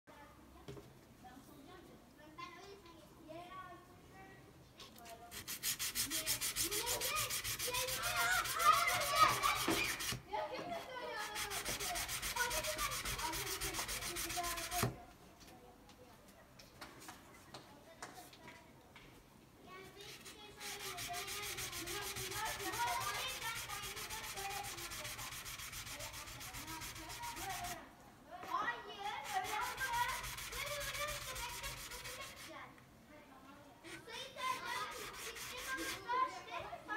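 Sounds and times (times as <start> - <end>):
knife scraping on wet sandpaper: 5.3 - 10.2, 11.2 - 14.9, 20.0 - 27.8, 29.1 - 32.5, 33.9 - 36.1.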